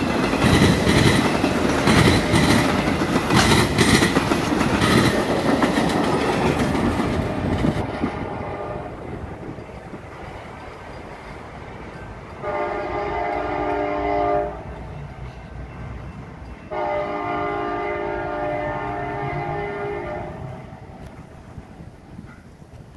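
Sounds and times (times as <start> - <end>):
train low rumble: 0.0 - 22.9
train air horn blasts: 7.8 - 9.1, 12.4 - 14.8, 16.7 - 20.8.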